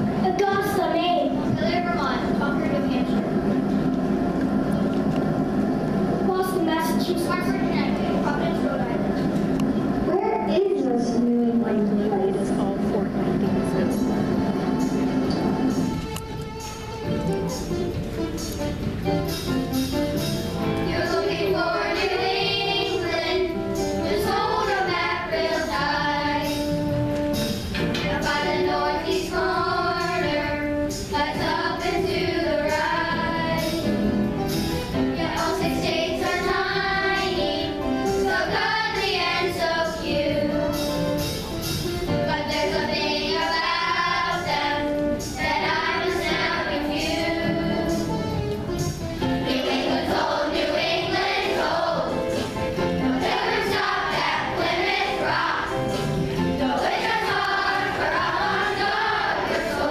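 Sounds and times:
children's choir singing: 11.8 - 19.0, 20.5 - 59.9.

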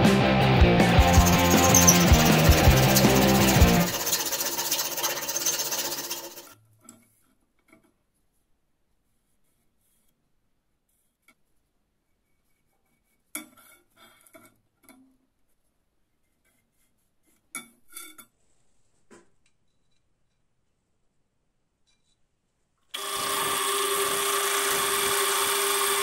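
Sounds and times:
metal tools clinking on metal: 1.1 - 4.2.

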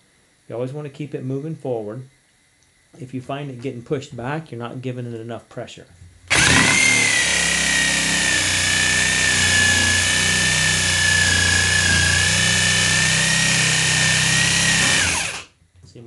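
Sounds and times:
jigsaw cutting wood: 6.3 - 15.5.

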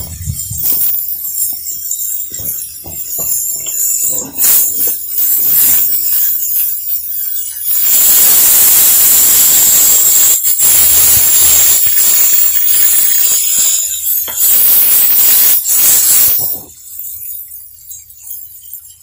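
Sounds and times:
liquid pouring: 0.0 - 19.0
vegetables sizzling in a pan: 0.6 - 17.2
hiss of steam: 2.8 - 16.8.

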